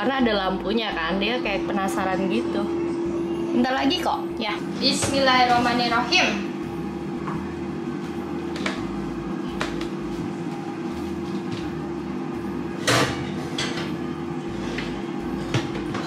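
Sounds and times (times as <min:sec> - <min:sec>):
steady hum: 0:00.0 - 0:16.0
baking dish clattering on rack: 0:12.8 - 0:13.9.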